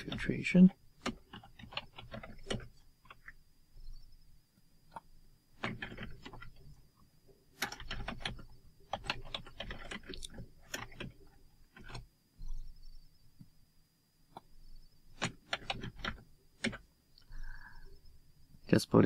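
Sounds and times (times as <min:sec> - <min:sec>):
faint high whine: 0:00.0 - 0:01.2, 0:02.4 - 0:09.5, 0:10.1 - 0:15.4, 0:16.1 - 0:19.0
keyboard typing: 0:00.0 - 0:04.0, 0:04.9 - 0:06.8, 0:07.6 - 0:12.9, 0:15.1 - 0:16.9.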